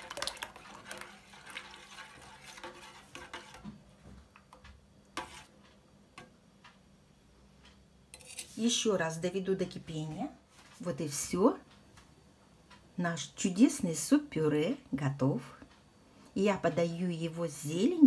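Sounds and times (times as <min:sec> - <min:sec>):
soup sloshing while stirred: 0:00.0 - 0:03.7.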